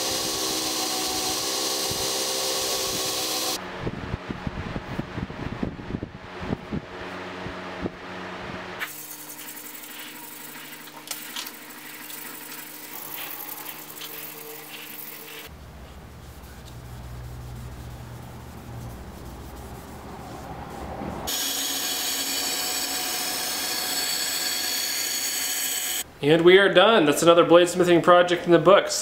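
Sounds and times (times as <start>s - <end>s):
knife on spinning buffing wheel: 0.0s - 3.6s, 8.9s - 15.5s, 16.3s - 26.0s
power tool motor hum: 0.0s - 3.6s, 21.3s - 26.0s.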